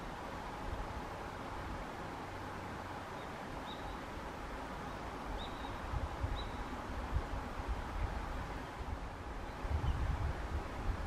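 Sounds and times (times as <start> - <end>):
steady hiss: 0.0 - 11.0
small bird chirps: 3.2 - 4.1, 4.8 - 6.6
wind gusts on microphone: 5.2 - 11.0.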